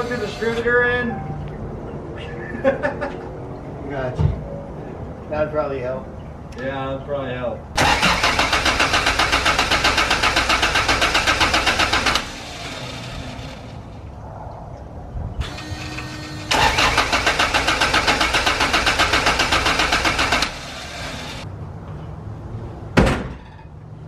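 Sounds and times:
car engine cranking: 0:07.8 - 0:13.9, 0:15.4 - 0:21.4.

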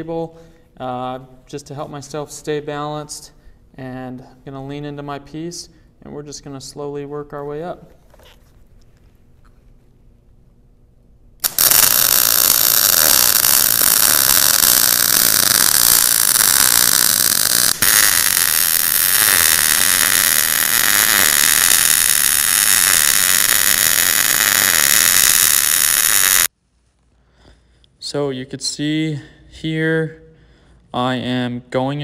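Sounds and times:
welding arc hissing and crackling: 0:11.4 - 0:26.5.

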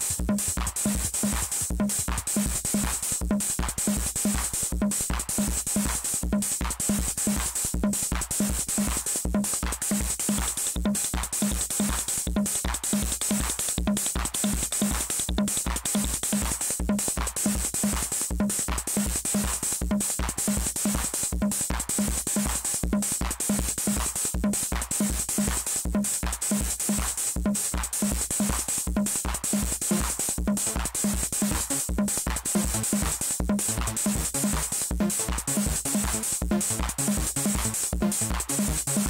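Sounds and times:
kick drum pulse: 0:00.0 - 0:26.0, 0:26.6 - 0:39.0
repeating synth pattern: 0:29.8 - 0:39.0.

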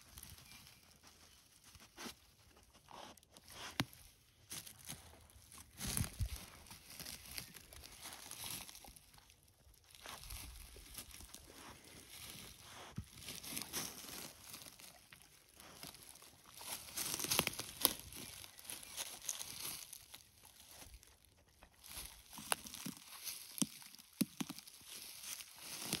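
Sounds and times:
twigs snapping and crackling: 0:03.6 - 0:21.1, 0:21.8 - 0:26.0
dog rustling through bushes: 0:15.6 - 0:19.9.

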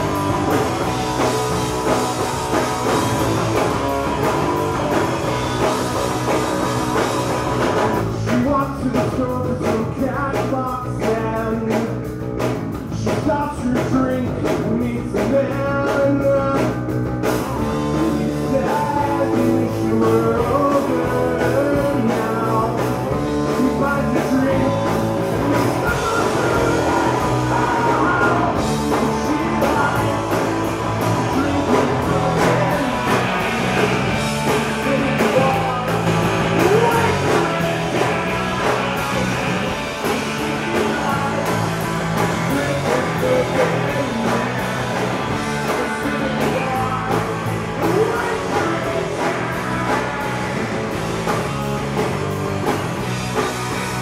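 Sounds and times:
live rock band playing: 0:00.0 - 0:54.0
male singer singing: 0:08.1 - 0:12.1, 0:12.9 - 0:16.9, 0:17.7 - 0:50.6.

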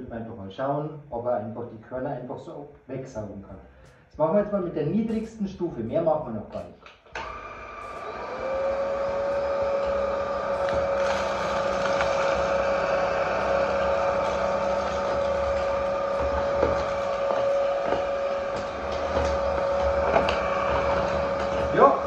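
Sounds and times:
vacuum motor whining: 0:07.1 - 0:22.0.

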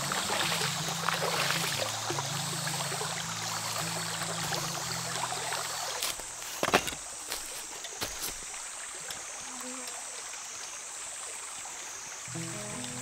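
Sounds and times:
quiet background music: 0:00.0 - 0:06.1, 0:12.3 - 0:13.0
river water rushing: 0:00.0 - 0:09.4.

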